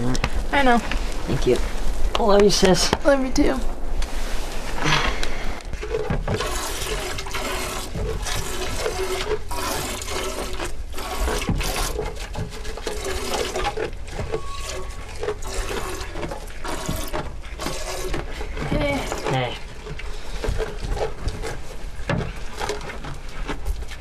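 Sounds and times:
milk squirting into metal pail: 5.8 - 21.6.

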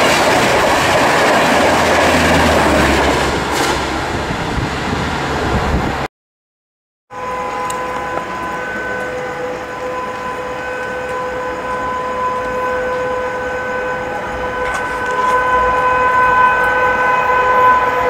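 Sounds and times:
locomotive horn blast: 7.1 - 18.0.

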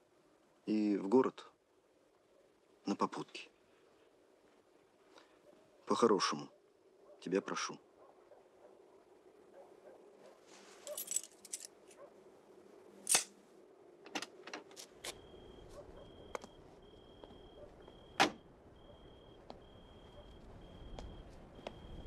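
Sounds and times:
car keys jangling: 10.9 - 11.7.

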